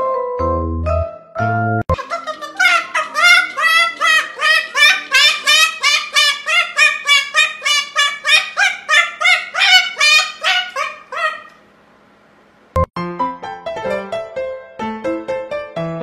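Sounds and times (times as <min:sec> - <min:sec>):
cockatoo squawking: 0:01.9 - 0:11.6.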